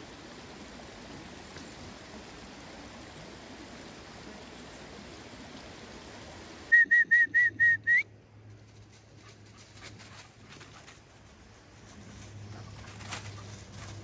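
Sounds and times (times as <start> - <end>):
shallow stream running: 0.0 - 14.0
high whistle pips: 6.7 - 8.1.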